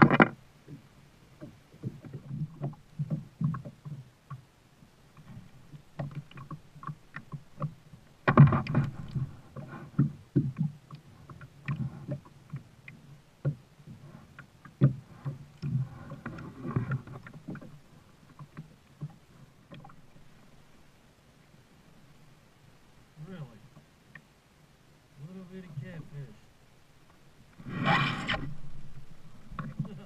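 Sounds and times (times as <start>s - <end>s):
paddle splashes: 0.0s - 30.0s
hollow knocks against kayak hull: 5.2s - 10.8s, 11.4s - 14.0s, 14.7s - 17.8s.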